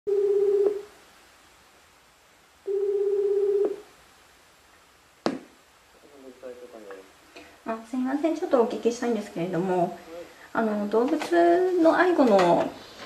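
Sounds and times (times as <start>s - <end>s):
telephone ringback tone warbling: 0.1s - 0.9s, 2.7s - 3.8s.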